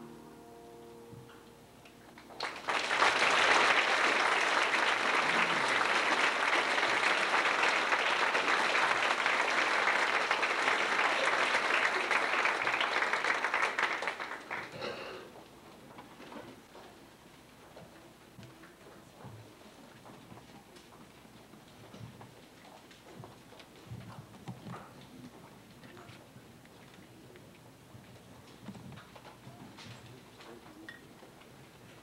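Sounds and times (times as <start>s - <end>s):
audience applauding: 2.2s - 14.9s.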